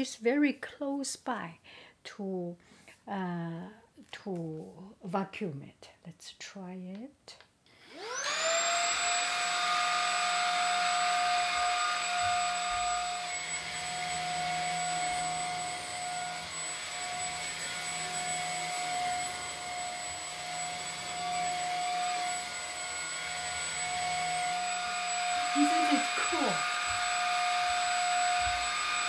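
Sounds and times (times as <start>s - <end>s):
cordless vacuum motor whine: 7.8s - 29.0s.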